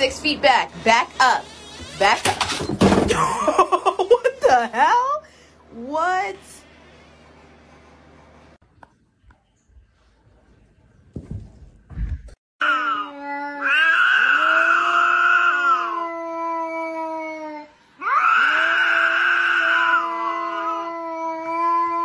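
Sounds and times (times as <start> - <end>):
cat yowling: 12.6 - 22.0.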